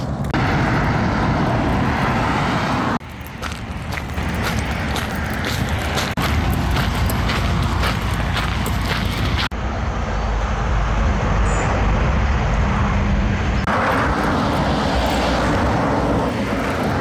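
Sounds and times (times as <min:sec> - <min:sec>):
highway traffic noise: 0:00.0 - 0:17.0
footsteps on gravel: 0:03.0 - 0:09.6.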